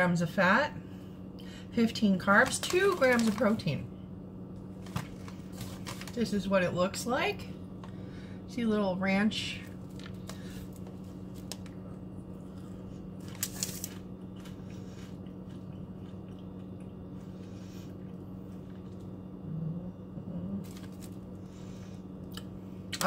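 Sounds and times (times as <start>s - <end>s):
steady low hum: 0.0s - 23.0s
snack bag crinkling: 2.2s - 3.7s, 4.7s - 6.3s, 9.6s - 16.7s, 20.6s - 21.4s.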